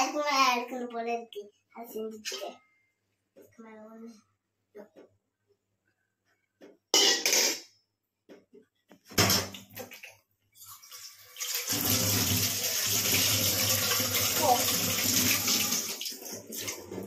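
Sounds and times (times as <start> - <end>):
dishes and cutlery clattering: 7.0 - 7.7
tap water gushing into sink: 10.6 - 17.0.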